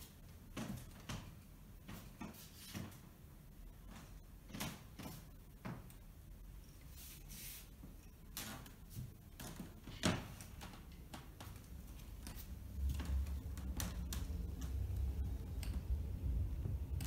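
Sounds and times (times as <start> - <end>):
low rumble: 12.4 - 17.0.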